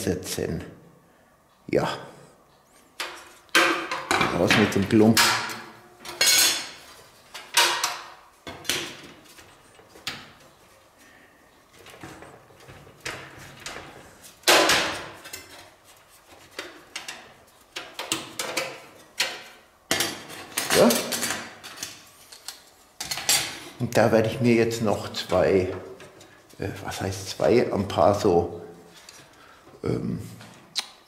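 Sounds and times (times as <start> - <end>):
metal cover plates knocking and clanking: 3.0 - 6.8, 7.4 - 9.0.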